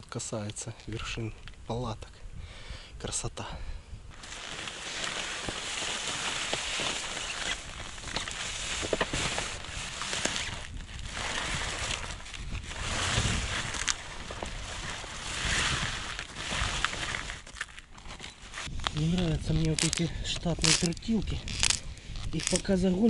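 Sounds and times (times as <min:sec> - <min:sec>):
wind buffeting microphone: 0:07.6 - 0:17.3.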